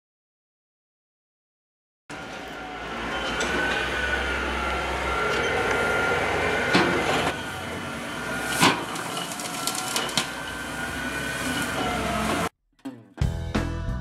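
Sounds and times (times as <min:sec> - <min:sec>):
high hydraulic whine: 0:02.1 - 0:12.5
truck engine running: 0:02.1 - 0:12.5.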